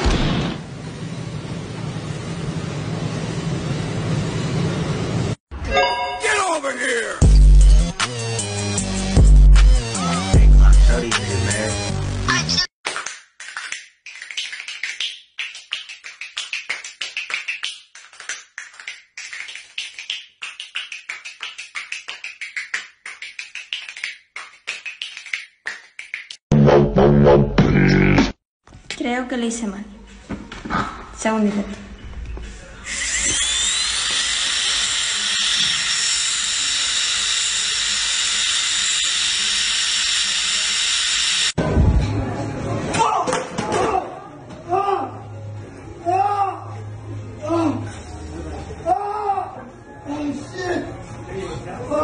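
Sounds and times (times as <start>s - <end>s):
nail drill whine: 32.8s - 41.6s.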